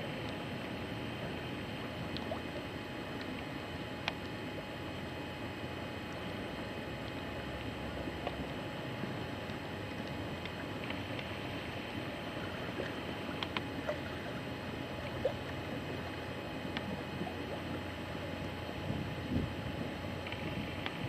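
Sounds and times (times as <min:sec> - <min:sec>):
choppy water against boat: 0:00.0 - 0:21.0
faint clicks: 0:13.4 - 0:13.7.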